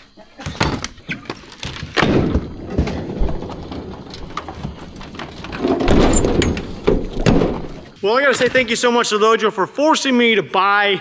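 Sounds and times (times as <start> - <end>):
items knocking and clattering: 0.4 - 8.6
rustling: 1.1 - 8.6.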